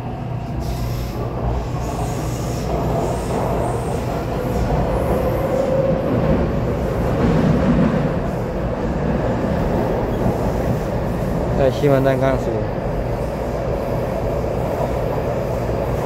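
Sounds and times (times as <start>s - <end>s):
train wheels rumbling on rails: 0.0s - 16.0s.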